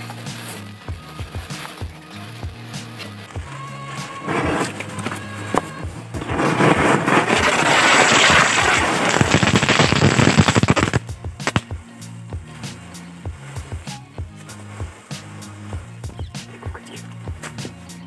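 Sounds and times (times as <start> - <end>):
firecrackers crackling: 0.0 - 18.0.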